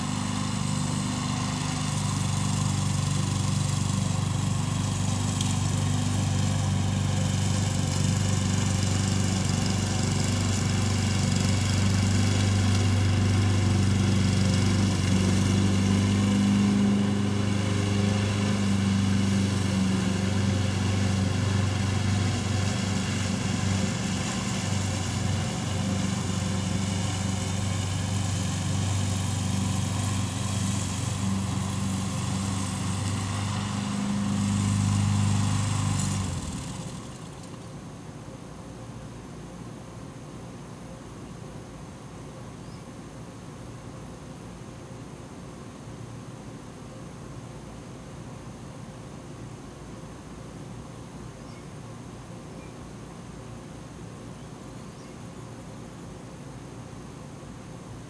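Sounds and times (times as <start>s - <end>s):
engine humming: 0.0s - 37.8s.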